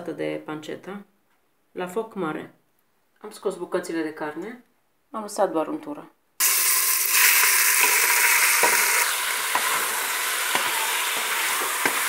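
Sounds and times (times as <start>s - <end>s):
meat sizzling in hot fat: 6.4s - 12.0s.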